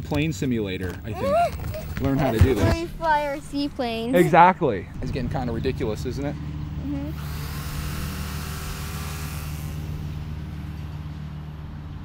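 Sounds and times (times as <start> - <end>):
steady low hum: 0.0 - 12.0
electric model plane motor whining: 6.9 - 10.9.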